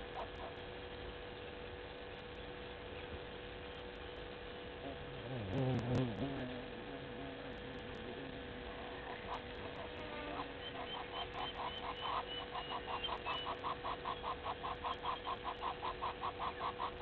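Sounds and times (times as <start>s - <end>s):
steady thin hum: 0.0s - 17.0s
bird calling repeated note: 9.1s - 17.0s.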